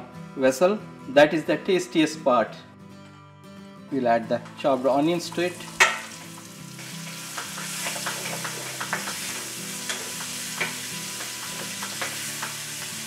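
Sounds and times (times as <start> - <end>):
onions sizzling in oil: 5.3 - 13.0.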